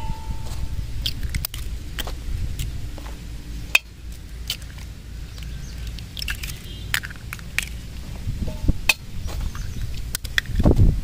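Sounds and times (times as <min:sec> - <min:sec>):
low steady rumble: 0:00.0 - 0:11.0
eggshells cracking: 0:01.0 - 0:02.7, 0:04.1 - 0:08.0.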